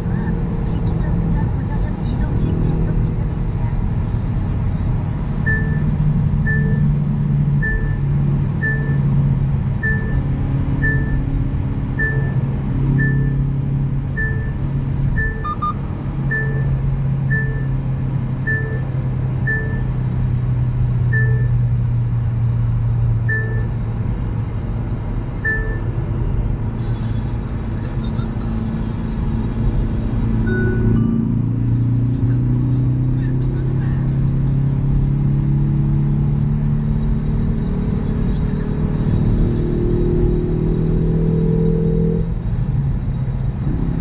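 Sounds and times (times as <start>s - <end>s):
engine and road drone: 0.0s - 44.0s
short electronic beep: 5.5s - 6.9s, 7.6s - 8.0s, 8.6s - 9.0s, 9.8s - 10.2s, 10.8s - 11.3s, 12.0s - 12.4s, 13.0s - 13.4s, 14.2s - 14.6s, 15.2s - 16.7s, 17.3s - 17.8s, 18.5s - 18.8s, 19.5s - 19.9s, 21.1s - 21.6s, 23.3s - 23.7s, 25.4s - 25.9s, 30.5s - 31.4s.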